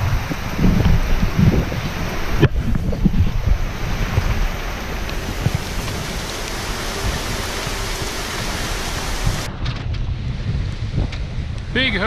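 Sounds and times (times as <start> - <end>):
heavy rain pouring: 0.0 - 9.6
wind and sea rushing: 0.0 - 12.0.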